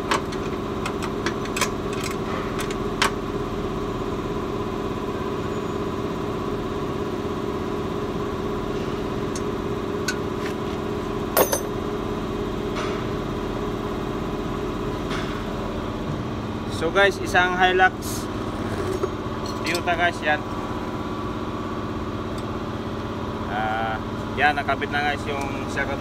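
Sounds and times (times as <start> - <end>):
metal tools clinking: 11.4 - 11.8, 18.9 - 20.0.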